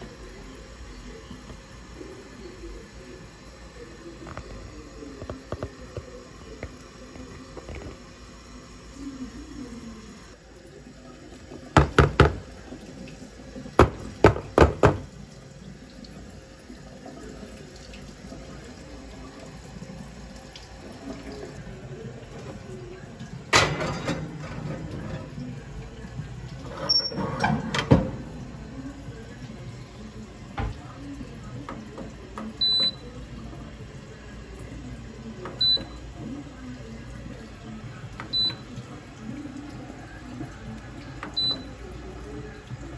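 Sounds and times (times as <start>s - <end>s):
oven control panel beeps: 26.7s - 28.1s, 32.5s - 33.2s, 35.4s - 36.0s, 38.2s - 38.8s, 41.3s - 41.8s.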